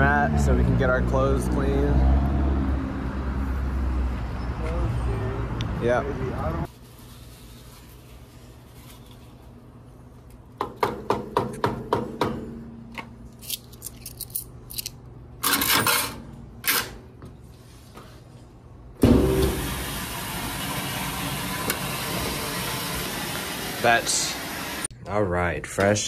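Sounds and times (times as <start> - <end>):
loud thump: 19.0 - 19.8.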